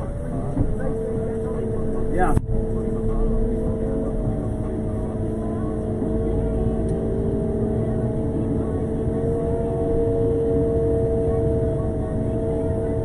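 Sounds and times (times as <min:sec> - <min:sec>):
road sweeper engine droning hum: 0:00.0 - 0:13.0.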